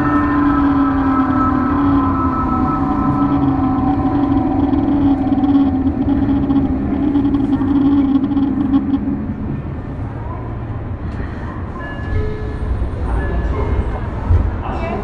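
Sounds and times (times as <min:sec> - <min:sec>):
train motor hum: 0:00.0 - 0:11.7
train wheels rumbling on rails: 0:00.0 - 0:15.0.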